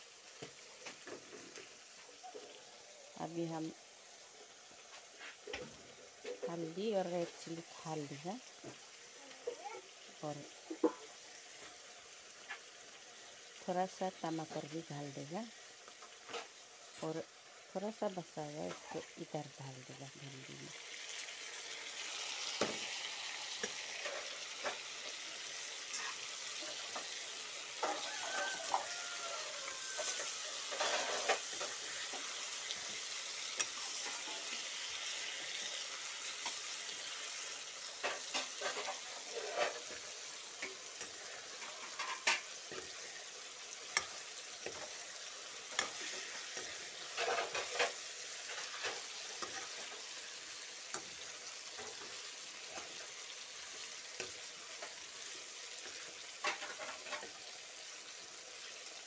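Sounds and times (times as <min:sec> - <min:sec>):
vegetables sizzling in oil: 0:00.0 - 0:59.0
metal ladle scraping pan: 0:29.8 - 0:32.3, 0:38.0 - 0:43.2, 0:45.7 - 0:50.1, 0:56.4 - 0:57.5.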